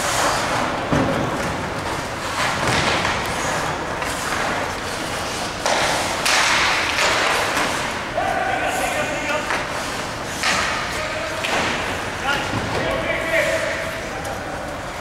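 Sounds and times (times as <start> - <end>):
skates scraping on ice: 0.0 - 8.0
hockey sticks and puck knocking: 0.1 - 8.0, 9.4 - 13.0.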